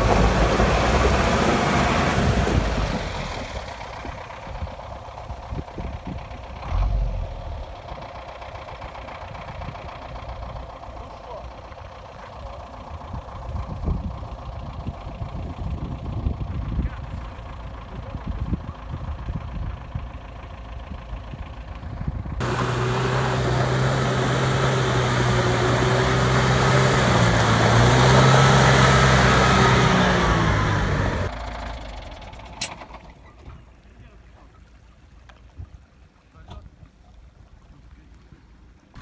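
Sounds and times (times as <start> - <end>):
distant vehicle engine running: 0.0 - 33.9
off-road vehicle engine driving hard: 0.0 - 34.7
tyres hissing through snow: 22.4 - 30.2.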